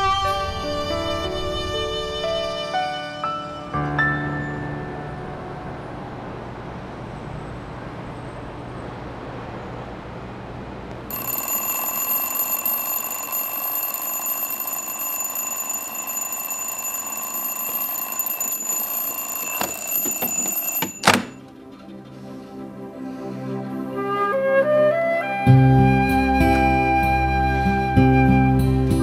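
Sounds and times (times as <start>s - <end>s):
alarm clock ringing: 11.1s - 21.5s.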